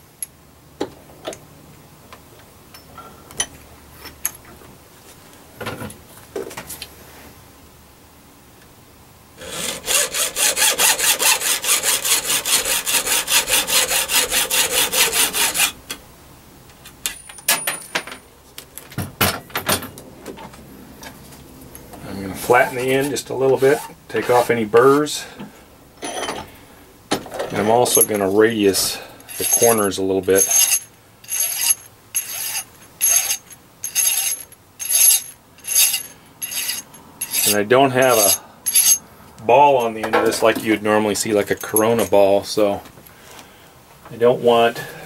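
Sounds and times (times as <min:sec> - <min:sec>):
hacksaw cutting metal rod: 0:09.4 - 0:15.8, 0:29.3 - 0:29.8, 0:30.4 - 0:39.0.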